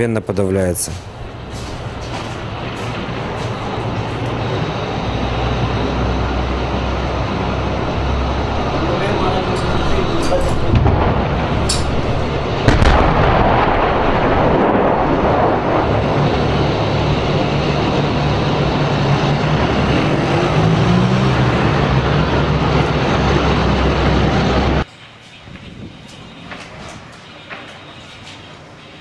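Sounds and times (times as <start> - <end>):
heavy engine rumble: 0.2 - 29.0
tank gun firing: 10.7 - 15.4.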